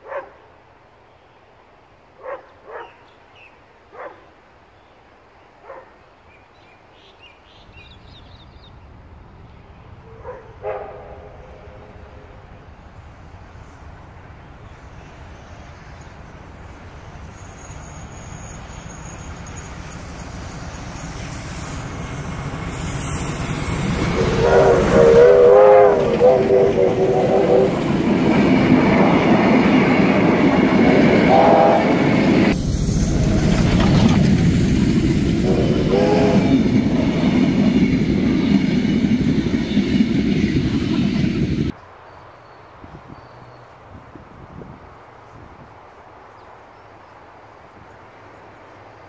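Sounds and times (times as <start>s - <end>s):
dog barking: 0.0s - 0.4s, 2.2s - 3.0s, 3.9s - 4.3s, 5.6s - 6.0s, 10.1s - 11.4s
steam locomotive rumble: 10.6s - 41.8s.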